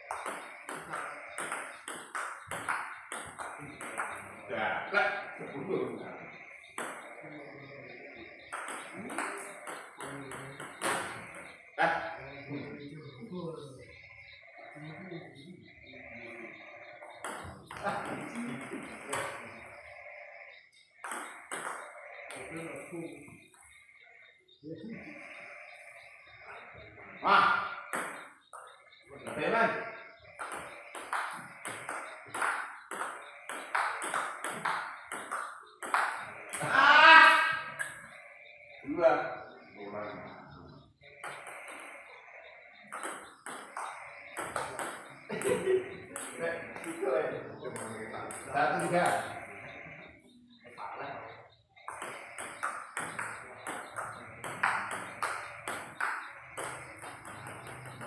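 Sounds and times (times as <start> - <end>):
table tennis ball ticks: 42.8 - 47.0.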